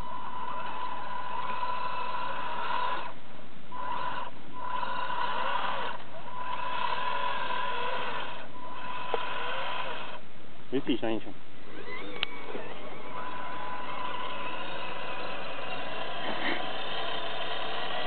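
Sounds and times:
toy truck motor and gears whining: 0.0s - 10.2s, 11.6s - 18.0s.

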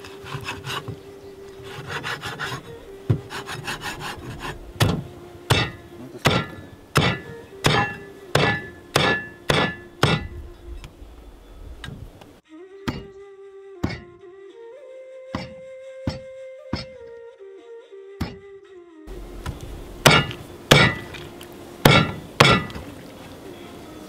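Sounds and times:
cleaver chopping on wooden board: 4.8s - 10.3s, 12.9s - 13.1s, 13.8s - 14.1s, 15.3s - 16.9s, 19.4s - 22.9s.

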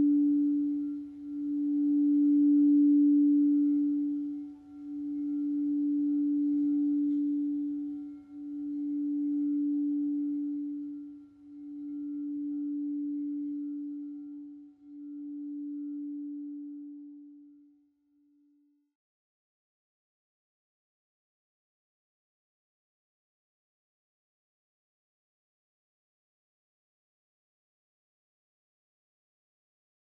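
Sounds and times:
singing bowl ringing: 0.0s - 17.7s.

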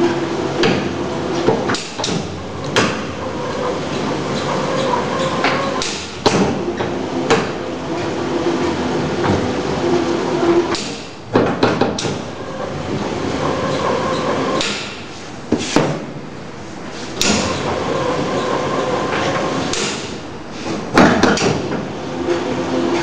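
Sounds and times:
dough sheeter machine humming: 0.0s - 23.0s
loud machine clunks: 17.2s - 17.8s.

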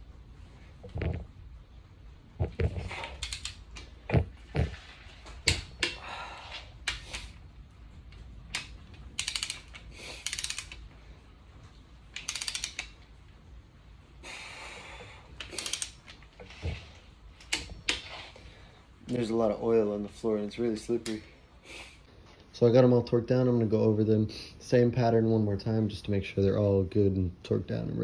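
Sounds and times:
ratchet wrench clicking: 3.0s - 3.9s, 8.5s - 10.9s, 12.1s - 13.0s, 15.4s - 16.2s.

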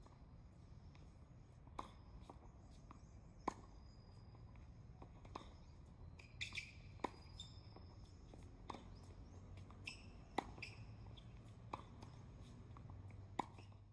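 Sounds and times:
faint birds chirping: 0.1s - 12.9s.

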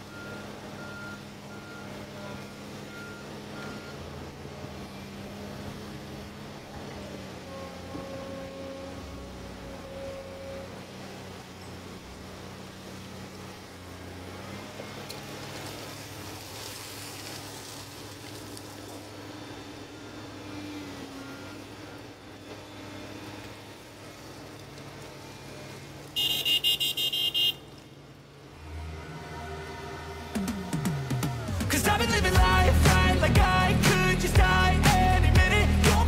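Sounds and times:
excavator diesel engine running: 0.0s - 36.0s
horn beeping: 7.4s - 11.0s, 25.3s - 33.6s.

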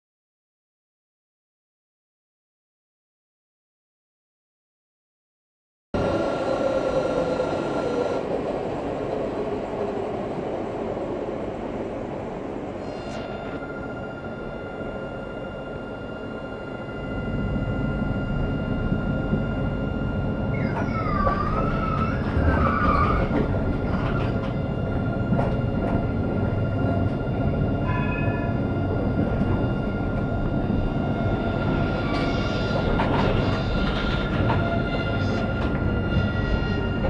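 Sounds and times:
tram rumbling on rails: 6.0s - 37.0s
high whine: 11.2s - 37.0s
wavering high tone: 12.8s - 37.0s.

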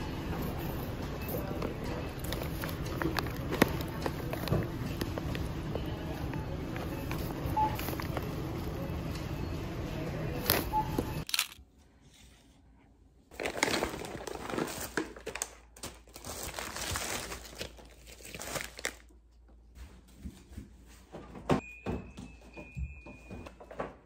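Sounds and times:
plastic bags crinkling: 1.4s - 5.6s, 13.3s - 19.1s.

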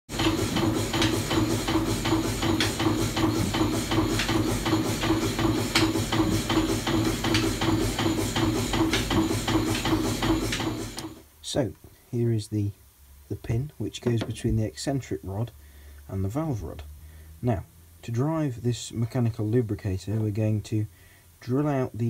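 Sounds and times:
steam engine mechanical knocks: 0.1s - 11.2s.

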